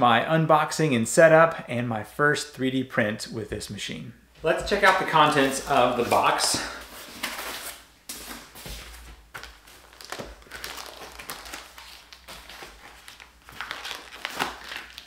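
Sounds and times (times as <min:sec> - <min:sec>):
plastic bag crinkling: 0:09.3 - 0:15.0.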